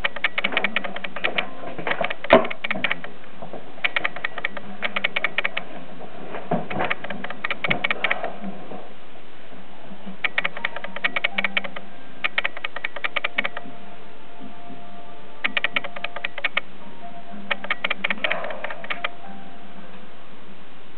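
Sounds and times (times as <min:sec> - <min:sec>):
rapid sharp clicking: 0:00.0 - 0:03.2, 0:03.8 - 0:05.7, 0:06.7 - 0:08.3, 0:10.2 - 0:13.7, 0:15.4 - 0:16.7, 0:17.5 - 0:19.2.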